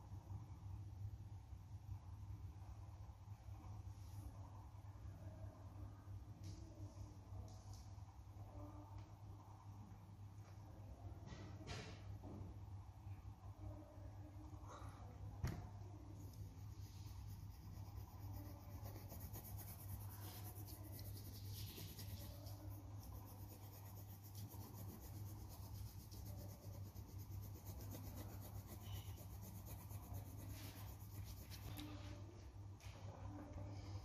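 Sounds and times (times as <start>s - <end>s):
steady low hum: 12.2s - 34.0s
pencil scratching on paper: 16.3s - 32.0s.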